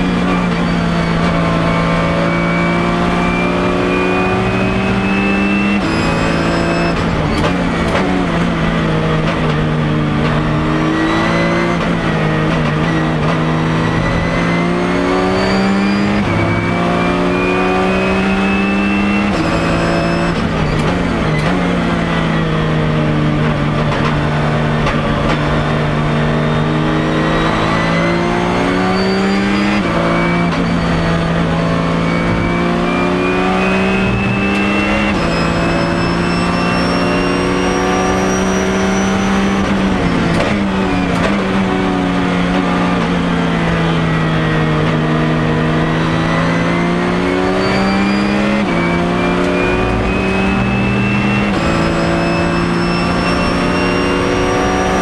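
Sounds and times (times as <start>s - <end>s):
race car engine accelerating: 0.0s - 55.0s
downshift blips: 45.6s - 55.0s.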